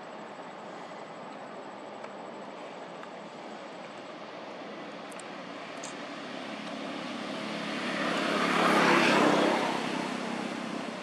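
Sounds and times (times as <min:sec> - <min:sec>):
engine passing by: 0:04.1 - 0:11.0.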